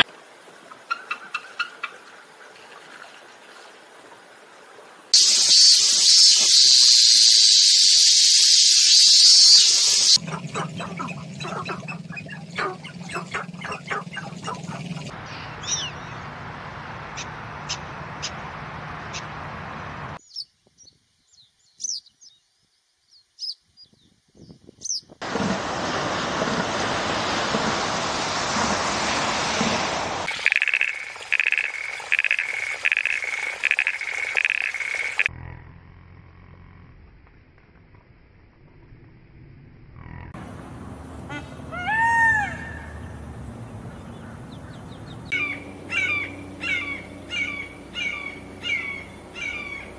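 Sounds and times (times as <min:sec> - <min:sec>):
cicada buzzing: 0:05.2 - 0:10.2, 0:30.3 - 0:35.3
short high chirping calls: 0:05.2 - 0:10.2, 0:30.3 - 0:35.3
ocean surf: 0:25.2 - 0:30.4.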